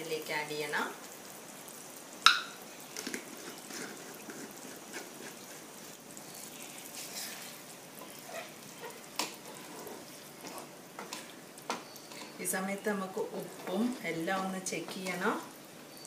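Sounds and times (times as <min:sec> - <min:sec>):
wooden spatula stirring: 0:03.0 - 0:12.5, 0:13.1 - 0:15.3.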